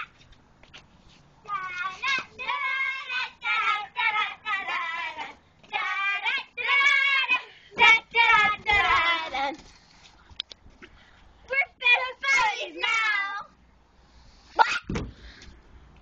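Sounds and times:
girls singing unaccompanied: 1.4s - 9.6s, 11.5s - 13.6s.

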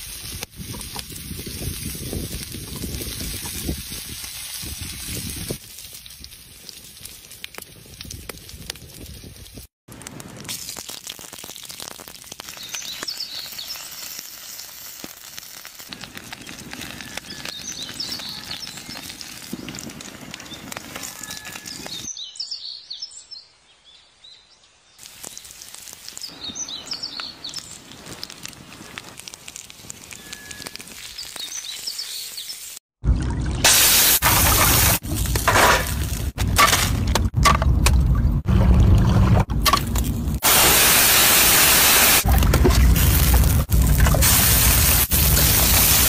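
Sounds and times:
seafood sizzling on hot stone: 0.0s - 8.4s, 10.2s - 22.0s, 25.0s - 32.8s, 33.7s - 36.2s, 40.4s - 42.3s, 42.9s - 46.0s
birds chirping: 16.4s - 19.2s, 26.1s - 28.0s, 30.1s - 32.7s.

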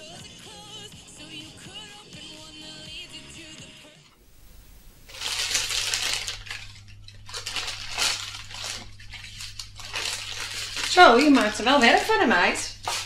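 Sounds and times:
low steady hum: 4.2s - 13.0s
snack packaging crinkling: 4.5s - 13.0s.

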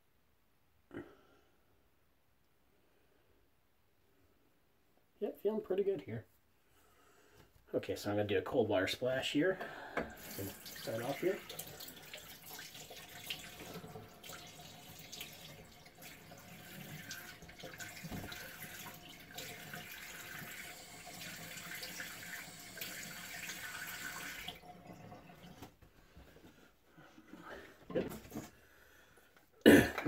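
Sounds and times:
water running from sink tap: 10.0s - 25.6s.

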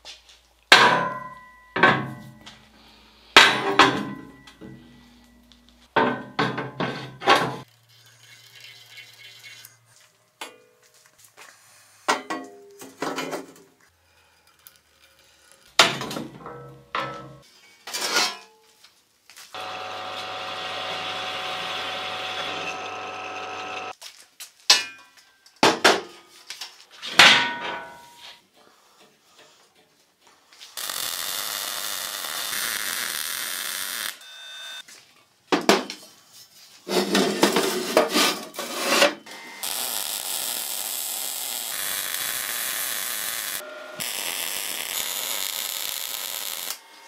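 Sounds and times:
tool humming: 19.6s - 23.9s, 39.3s - 47.0s.

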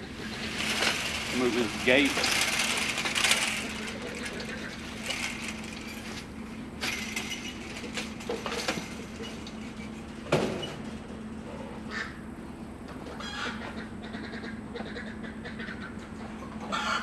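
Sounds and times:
steady low hum: 0.0s - 16.7s
chain-link panel rattling: 0.3s - 11.2s.

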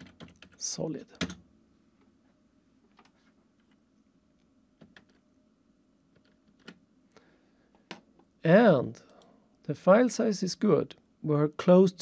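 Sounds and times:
keyboard and mouse clicks: 6.1s - 6.8s.

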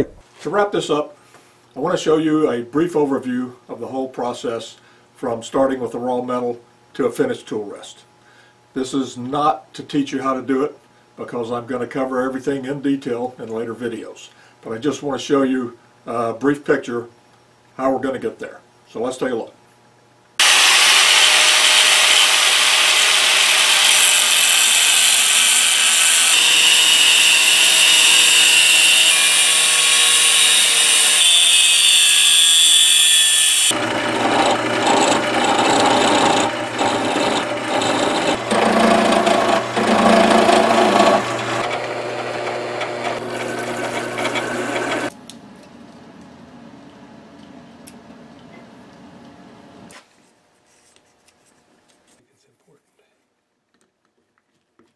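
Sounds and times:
angle grinder cutting steel: 20.4s - 45.1s
lathe cutting steel: 20.4s - 45.1s.

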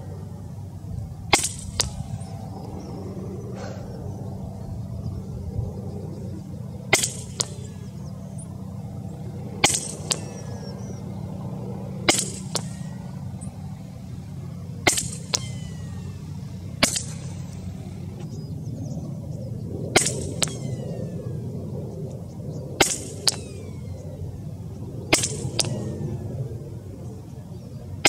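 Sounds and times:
steady low rumble: 0.0s - 28.0s
air rifle shot crack: 1.3s - 18.4s, 19.9s - 20.6s, 22.8s - 23.8s, 25.0s - 26.2s.

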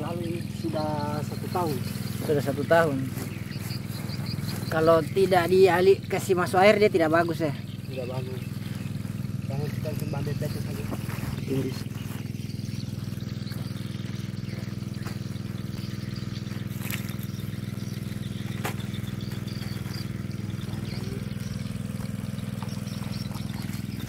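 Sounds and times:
small engine droning: 0.0s - 24.0s.

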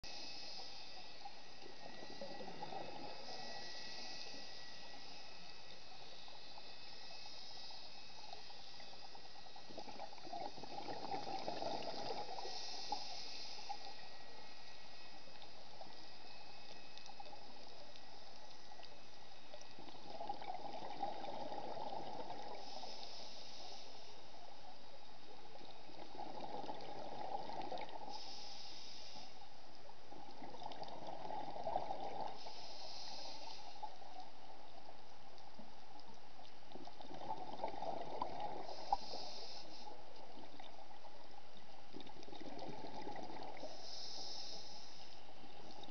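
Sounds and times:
regulator hiss: 0.0s - 20.0s, 22.5s - 24.4s, 28.0s - 29.6s, 32.4s - 34.0s, 38.6s - 40.1s, 43.6s - 45.6s
steady background hiss: 0.0s - 45.9s.

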